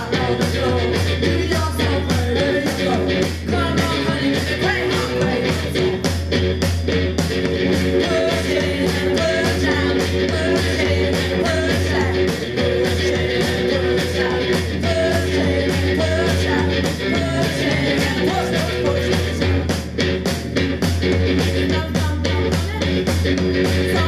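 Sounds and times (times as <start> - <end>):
person singing: 0.0 - 6.0, 8.0 - 19.7, 23.8 - 24.0
distorted electric guitar: 0.0 - 24.0
steady drum beat: 0.0 - 24.0.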